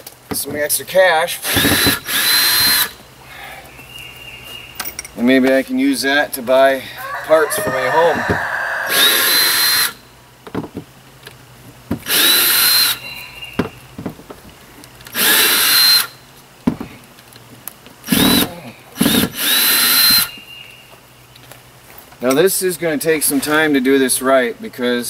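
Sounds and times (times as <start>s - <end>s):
cordless drill motor whine: 1.4s - 2.9s, 8.2s - 10.0s, 12.0s - 13.2s, 15.1s - 16.2s, 18.1s - 20.3s.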